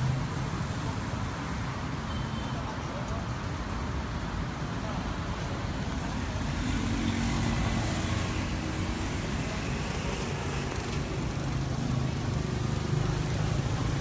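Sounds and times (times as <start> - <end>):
vehicle engine humming: 5.0 - 14.0.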